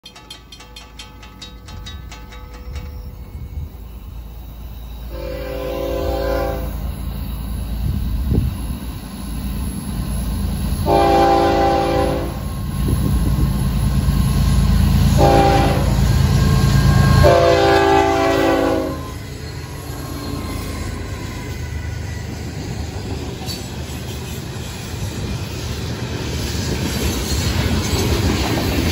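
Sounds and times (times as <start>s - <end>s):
diesel locomotive engines rumbling: 0.0s - 28.9s
locomotive horn: 5.1s - 6.9s, 10.8s - 12.5s, 15.1s - 19.2s.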